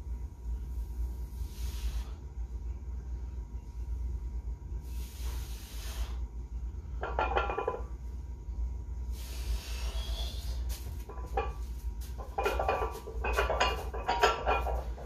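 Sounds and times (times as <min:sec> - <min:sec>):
steady low hum: 0:00.0 - 0:15.0
breathy exhales: 0:04.8 - 0:06.3, 0:09.1 - 0:10.7.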